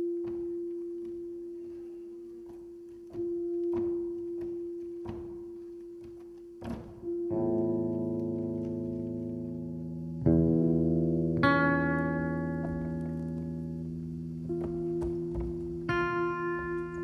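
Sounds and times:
bare feet on wooden stage: 0:00.0 - 0:09.5, 0:11.4 - 0:17.0
guitar chord ringing: 0:00.0 - 0:17.0
guitar sustained note: 0:07.0 - 0:17.0.

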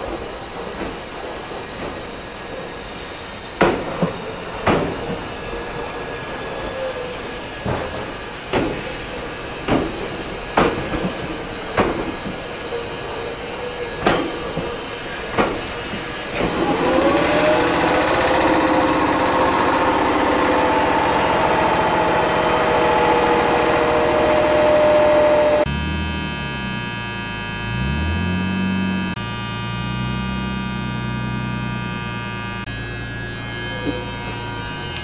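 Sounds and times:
train wheels clacking on rail joints: 0:03.5 - 0:05.3, 0:07.6 - 0:12.8, 0:13.7 - 0:25.4
traction motors whining: 0:11.7 - 0:35.0.

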